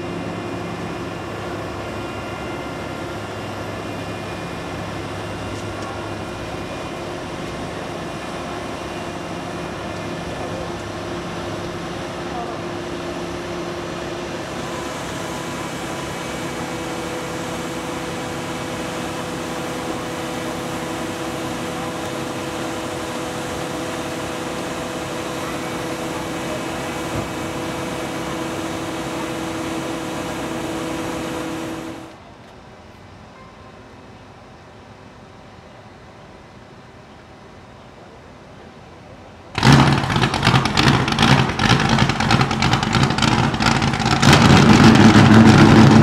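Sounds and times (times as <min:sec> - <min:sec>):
crane engine running: 0:00.0 - 0:33.3, 0:34.0 - 0:46.0.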